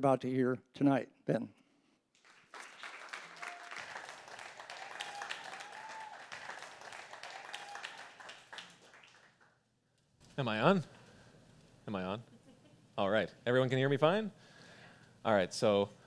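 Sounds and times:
audience applauding: 2.2s - 9.6s.

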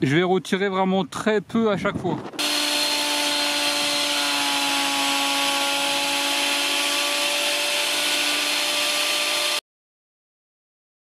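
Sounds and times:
planer whining and hissing: 2.4s - 9.6s.

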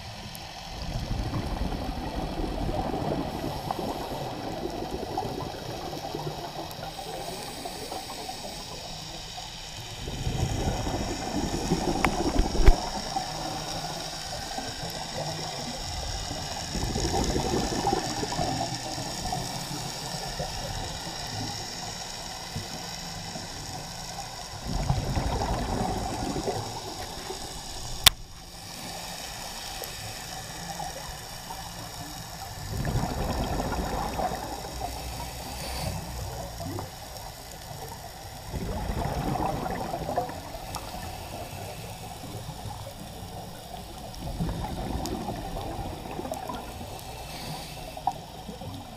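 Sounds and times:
steady hiss: 0.0s - 48.9s
diver's breath bubbling underwater: 10.0s - 13.6s, 16.7s - 19.1s, 24.6s - 28.1s, 32.7s - 35.7s, 38.5s - 41.5s, 44.2s - 47.2s.

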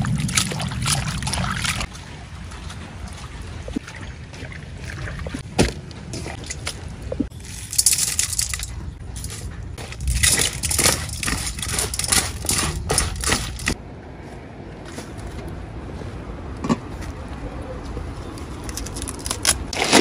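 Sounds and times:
bamboo slices rustling and crunching: 7.3s - 13.8s, 18.3s - 20.0s.

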